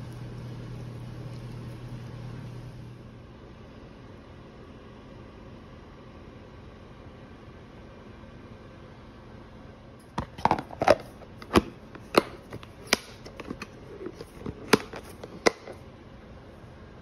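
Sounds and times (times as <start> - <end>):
plastic container lid snapping shut: 10.2 - 15.8.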